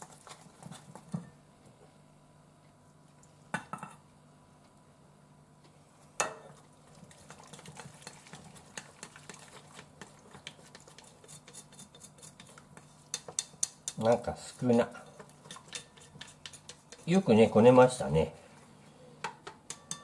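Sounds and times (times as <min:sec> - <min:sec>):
chopsticks stirring batter in metal bowl: 0:00.0 - 0:01.2, 0:06.6 - 0:18.1.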